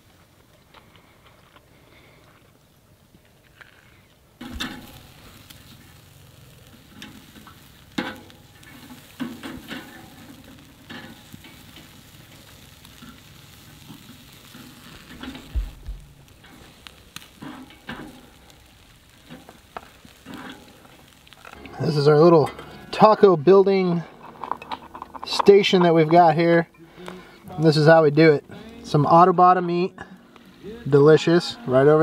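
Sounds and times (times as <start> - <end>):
meat sizzling over campfire: 0.0 - 32.0.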